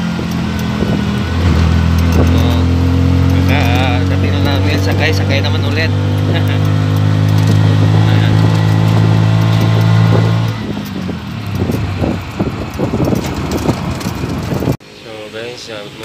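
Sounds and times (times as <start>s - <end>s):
vehicle rattling and knocking: 0.0s - 14.8s
vehicle engine humming: 0.0s - 16.0s.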